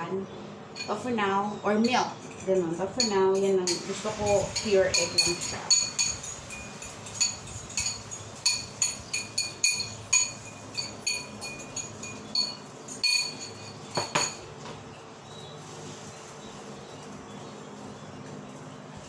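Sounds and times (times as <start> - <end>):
utensil clinking on ceramic bowl: 0.8 - 14.6.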